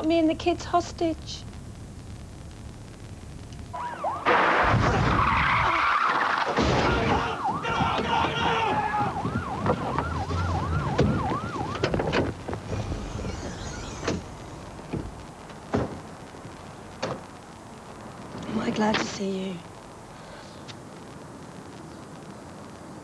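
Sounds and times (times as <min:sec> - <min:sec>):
police siren yelping: 0:03.7 - 0:12.2
vehicle engine and road noise: 0:07.3 - 0:19.8.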